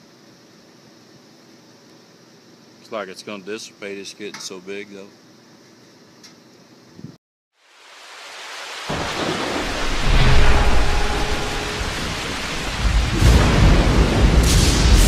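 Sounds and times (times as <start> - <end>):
rain hiss: 7.6 - 15.0
deep rolling thunder: 8.9 - 15.0.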